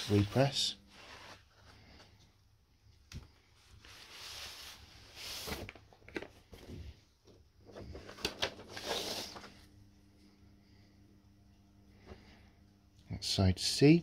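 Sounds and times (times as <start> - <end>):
paper sleeve rustling: 0.0 - 2.1, 3.6 - 6.2, 7.7 - 9.6.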